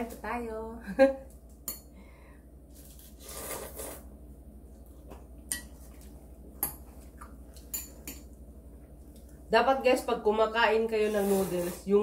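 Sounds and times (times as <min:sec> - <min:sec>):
slurping noodles: 0:03.0 - 0:04.1, 0:11.0 - 0:11.9.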